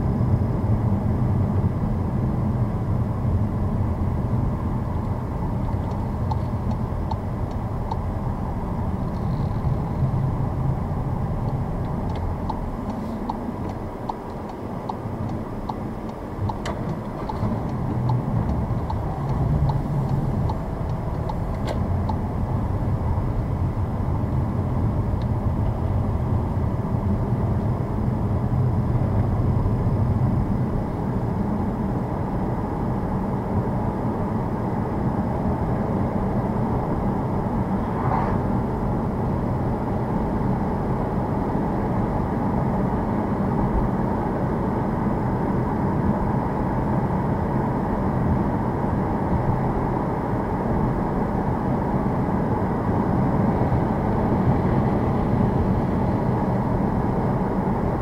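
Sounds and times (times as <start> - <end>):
tyre and engine rumble: 0.0 - 58.0
light ticks: 11.4 - 22.2.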